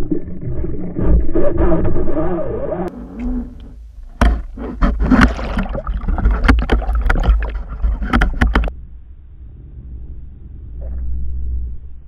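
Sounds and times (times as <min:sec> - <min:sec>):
low churning rumble: 0:00.0 - 0:12.0
sharp underwater knocks and clicks: 0:03.2 - 0:08.7.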